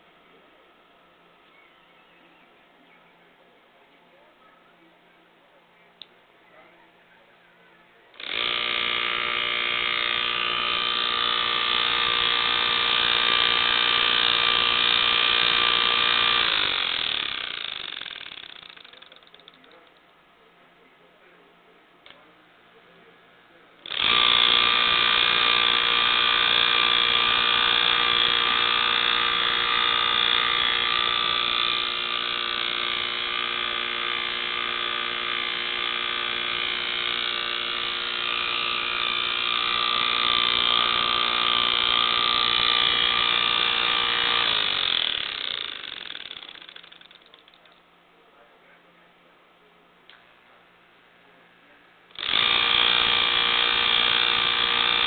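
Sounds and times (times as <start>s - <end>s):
compressor buzzing hum: 8.1s - 18.6s, 22.0s - 46.6s, 52.0s - 55.0s
compressor spinning down: 8.2s - 19.6s, 23.8s - 47.6s, 52.1s - 55.0s.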